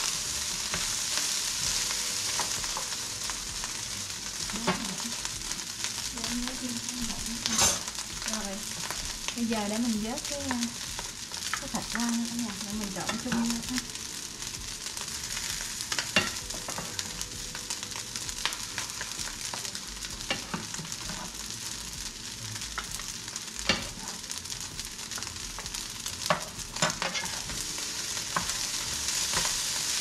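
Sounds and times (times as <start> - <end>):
rice sizzling in a hot pan: 0.0 - 30.0
spatula clinking and scraping pan: 7.4 - 7.9, 15.4 - 17.1, 26.3 - 27.6.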